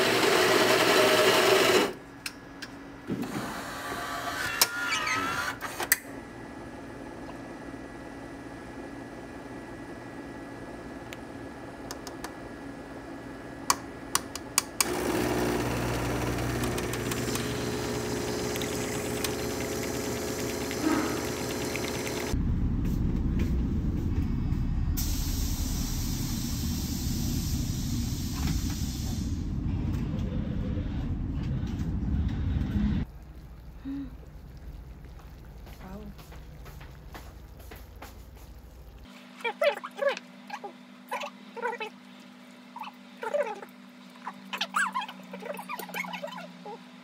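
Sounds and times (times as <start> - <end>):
espresso machine humming: 0.0 - 2.0, 14.8 - 22.4
low vehicle rumble: 22.3 - 35.7.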